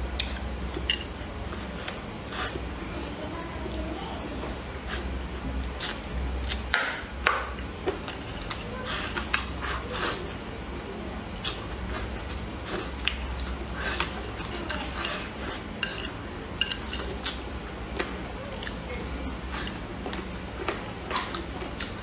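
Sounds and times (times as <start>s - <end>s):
wet chewing: 11.4s - 22.0s.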